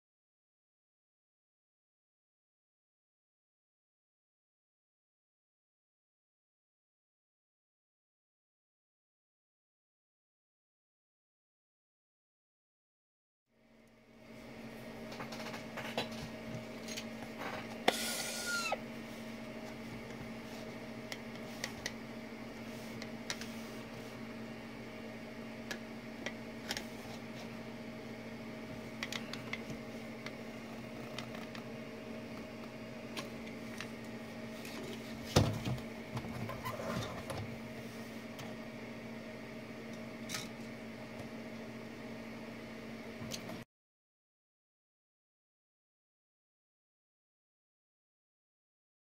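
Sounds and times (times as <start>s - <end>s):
machine hum: 13.6s - 43.6s.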